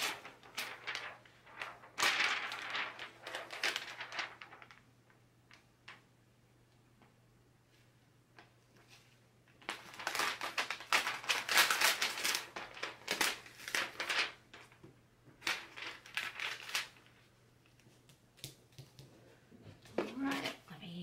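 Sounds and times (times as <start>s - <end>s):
plastic sheet crinkling: 0.0s - 6.0s, 8.4s - 18.1s.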